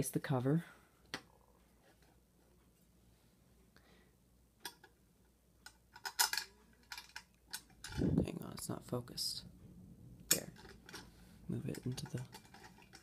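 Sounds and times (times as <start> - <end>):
plastic cover clicking and clattering: 5.6 - 8.0, 11.7 - 13.0.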